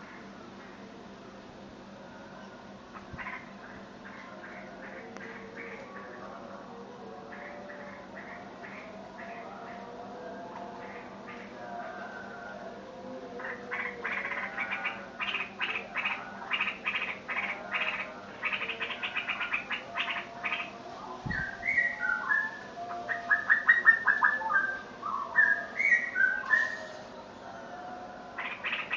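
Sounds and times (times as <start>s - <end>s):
bird calling harsh and whistled notes: 21.3s - 27.1s.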